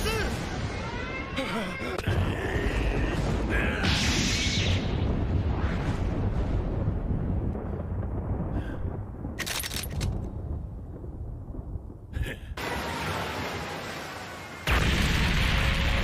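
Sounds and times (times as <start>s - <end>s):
low rumble: 2.2s - 12.6s.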